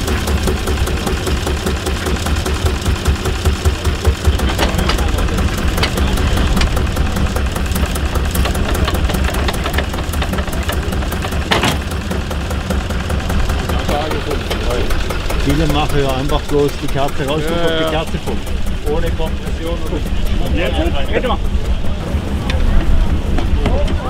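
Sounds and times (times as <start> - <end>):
diesel tractor engine idling: 0.0 - 24.0.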